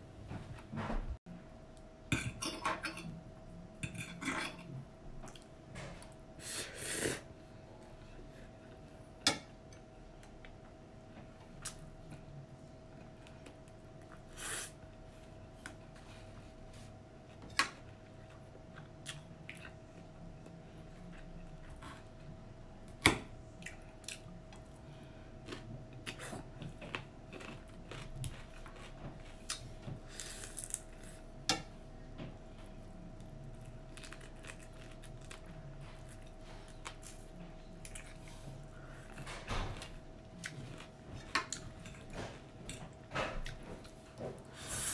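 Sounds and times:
faint steady hum: 0.0 - 44.9
soft chewing and sucking: 33.2 - 39.2.

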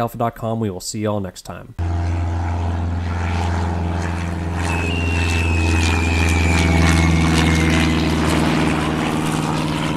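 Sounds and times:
high whine sliding down: 1.8 - 9.9
propeller airplane engine droning: 1.8 - 9.9.

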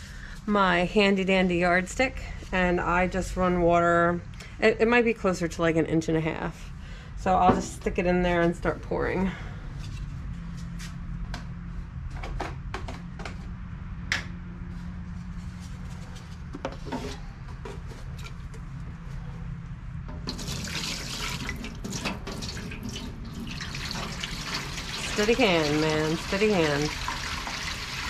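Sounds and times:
water pouring into metal pan: 20.3 - 28.0.

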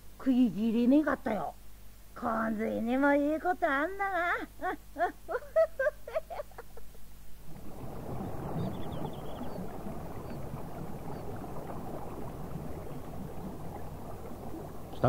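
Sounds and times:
rushing river water: 7.4 - 15.0
faint high chirps: 8.4 - 10.4.

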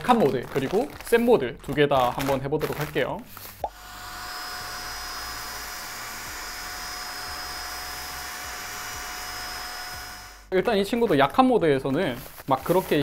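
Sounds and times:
mini vacuum high whine: 3.7 - 10.5.

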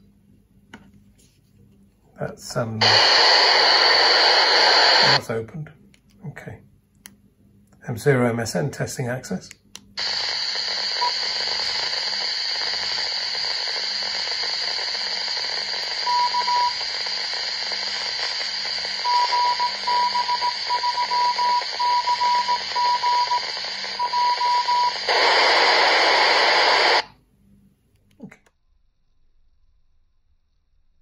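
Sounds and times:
hissy radio receiver: 2.4 - 5.3, 9.4 - 27.1
open-squelch radio noise: 2.5 - 5.2, 10.0 - 27.1
beeping morse code tone: 16.0 - 16.8, 19.0 - 25.4.

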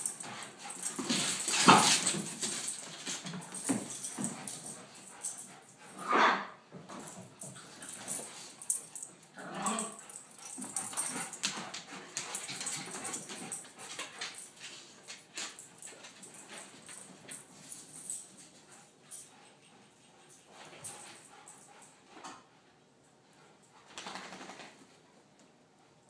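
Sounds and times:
dogs scuffling: 0.0 - 5.7, 6.7 - 18.9.

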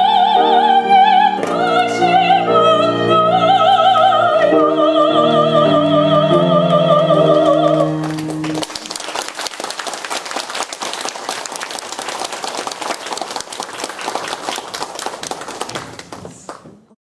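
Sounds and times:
audience applauding: 7.7 - 17.0.

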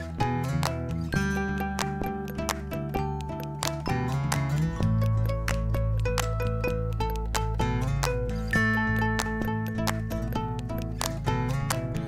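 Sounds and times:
instrumental music with bass line: 0.0 - 12.0.

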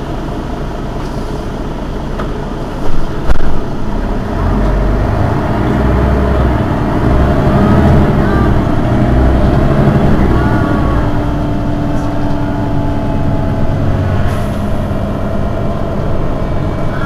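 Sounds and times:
bus engine idling: 0.0 - 17.0.

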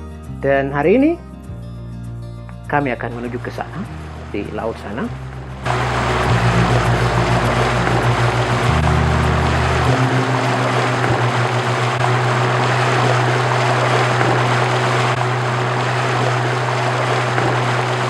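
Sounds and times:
outboard motor drone: 5.3 - 18.0
wind and water rushing: 5.6 - 18.0.

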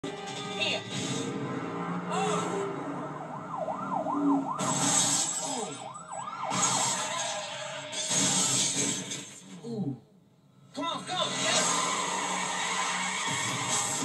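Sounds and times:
police siren: 0.2 - 7.9, 11.5 - 14.0.

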